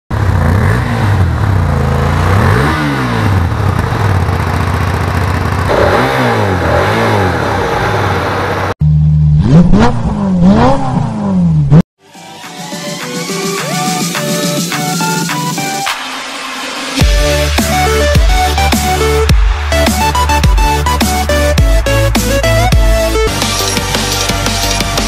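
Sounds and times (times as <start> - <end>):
motorcycle engine idling and blipping: 0.1 - 6.2, 17.0 - 25.0
loud motorcycle engine revving: 0.1 - 11.9.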